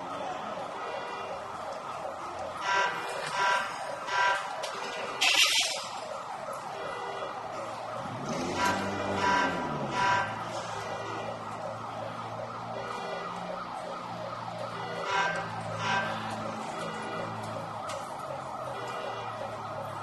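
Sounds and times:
emergency sirens wailing: 0.0s - 20.0s
car alarms warbling: 2.5s - 11.8s, 14.6s - 20.0s.

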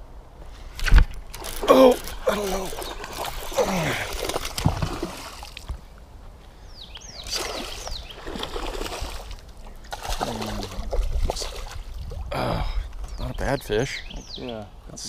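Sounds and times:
fish splashing in water: 1.3s - 5.6s, 7.2s - 11.9s.

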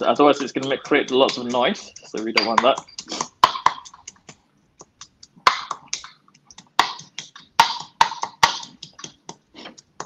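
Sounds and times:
pestle pounding in a mortar: 0.0s - 4.3s, 5.5s - 9.3s.

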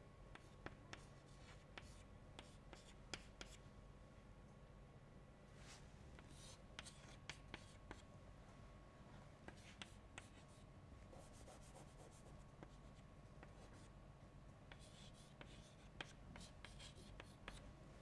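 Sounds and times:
chalk tapping and scratching on board: 0.3s - 3.6s, 6.2s - 8.0s, 9.4s - 10.6s, 11.2s - 13.9s, 14.7s - 17.6s.

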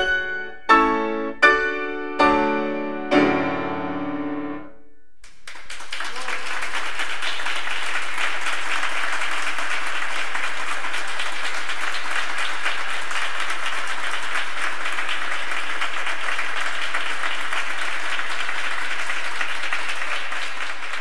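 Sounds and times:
audience applauding: 5.2s - 21.0s.

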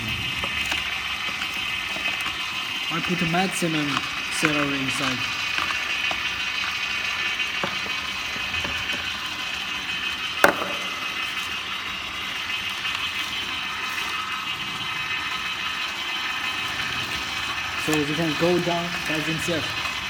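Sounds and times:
juicer motor whining: 0.0s - 20.0s.

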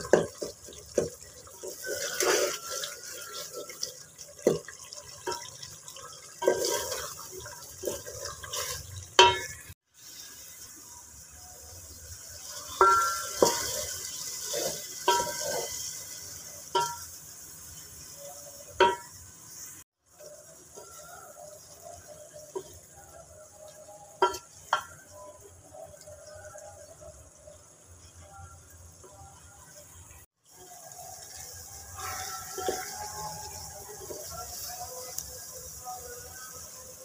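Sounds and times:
spatula knocking and scraping pot: 0.0s - 3.8s, 6.4s - 9.7s, 12.8s - 15.8s
wet stirring of thick sauce: 0.0s - 9.6s.

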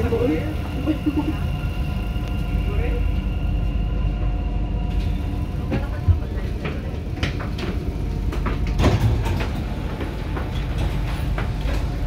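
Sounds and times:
train carriage low rumble: 0.0s - 12.0s
knocks and clatter: 5.6s - 12.0s.

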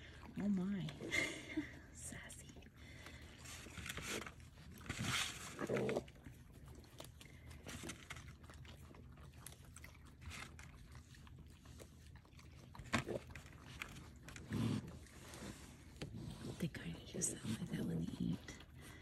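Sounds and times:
nuts being chewed: 2.5s - 16.5s.

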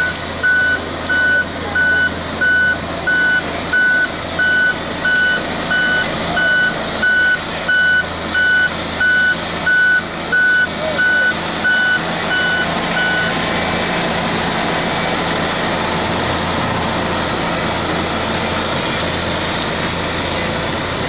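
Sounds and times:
reversing alarm beeping: 0.0s - 13.8s
diesel engine running: 0.0s - 21.0s.

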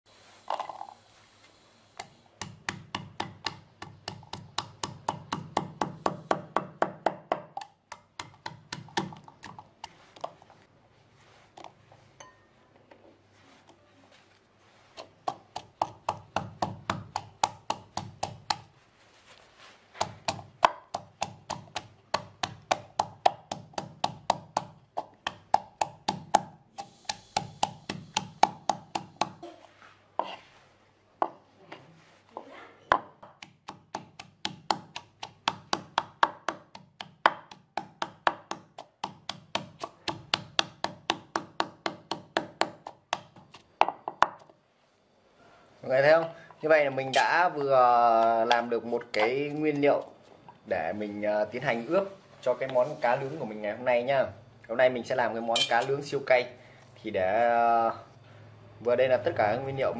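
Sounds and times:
wooden pestle pounding in mortar: 2.4s - 10.3s, 15.2s - 18.7s, 20.0s - 29.4s, 33.0s - 44.4s.

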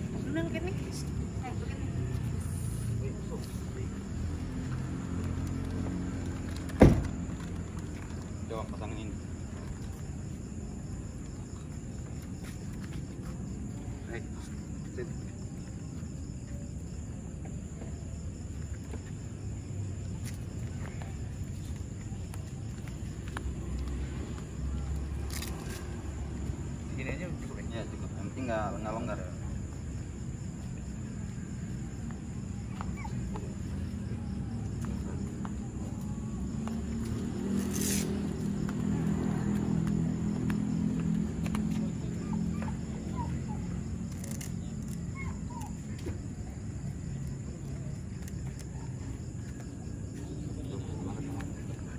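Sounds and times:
crickets chirping: 0.0s - 51.9s.

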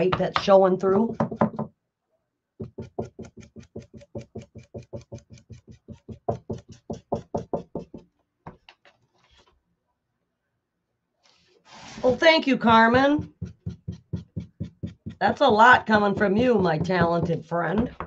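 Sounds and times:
dauber tapping on wooden board: 2.6s - 8.6s.

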